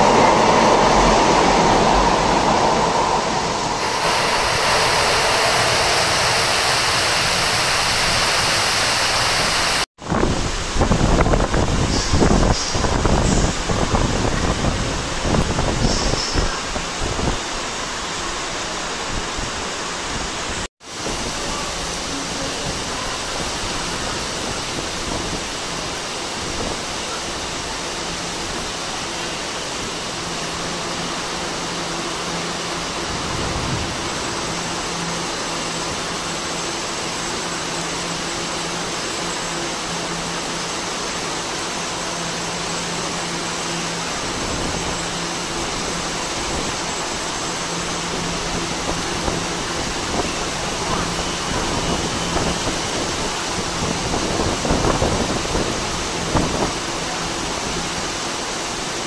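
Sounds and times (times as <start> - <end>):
electric train humming: 0.0 - 59.0
heavy rain: 0.0 - 59.0.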